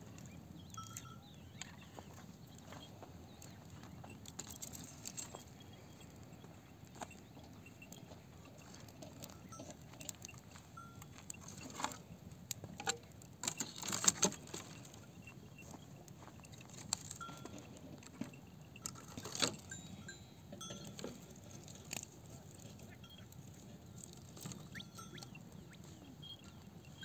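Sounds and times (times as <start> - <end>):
dry branches clattering and snapping: 3.4 - 5.4, 11.1 - 15.1, 15.7 - 19.8, 20.6 - 22.9.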